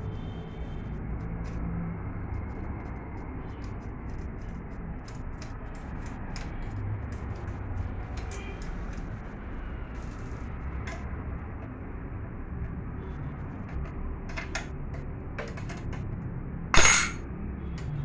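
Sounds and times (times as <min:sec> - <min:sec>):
spanner clicking on metal frame: 0:10.0 - 0:11.7, 0:13.7 - 0:16.1, 0:16.8 - 0:17.2.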